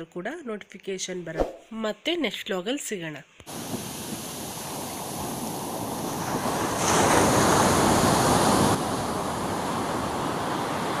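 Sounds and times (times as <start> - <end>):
sea waves washing over sand: 3.5 - 11.0.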